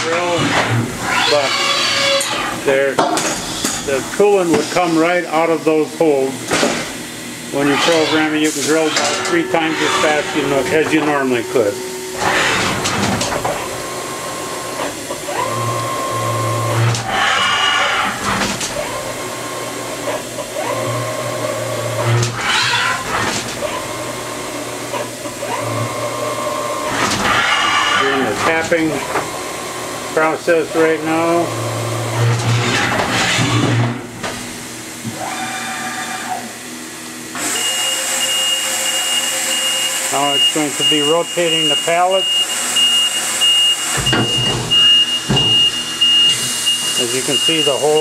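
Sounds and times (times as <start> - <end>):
spindle motor whine: 0.0 - 3.0, 3.6 - 33.9, 34.9 - 48.0
steady high whine: 2.4 - 15.2
motor whine: 5.6 - 28.2
low motor hum: 8.5 - 17.1.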